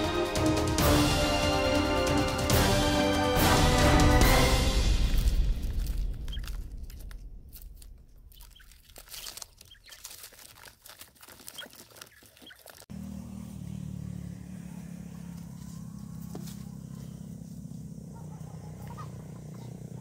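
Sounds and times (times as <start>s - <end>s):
birds scratching in plastic basket: 8.4s - 12.9s
steady low hum: 13.0s - 20.0s.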